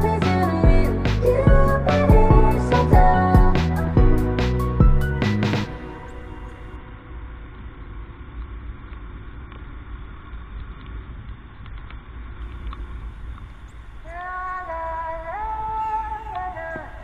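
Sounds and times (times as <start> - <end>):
music: 0.0 - 6.8.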